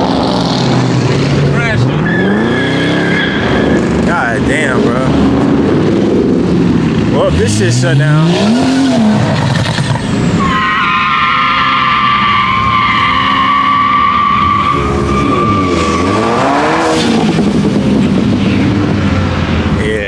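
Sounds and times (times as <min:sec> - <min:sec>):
car engine revving: 0:00.0 - 0:20.0
car tires squealing: 0:01.8 - 0:04.2, 0:08.2 - 0:17.5.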